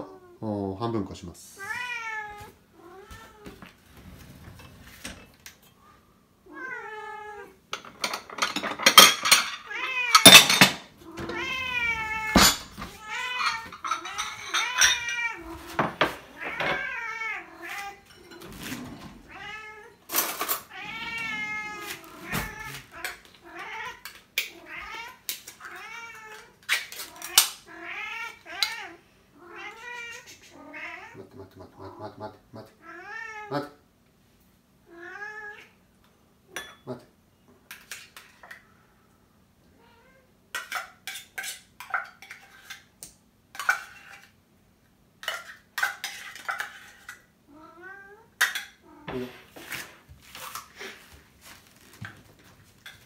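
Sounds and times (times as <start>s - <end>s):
cats meowing: 1.5s - 3.6s, 5.9s - 7.6s, 9.3s - 33.8s, 34.8s - 35.8s, 47.4s - 49.5s.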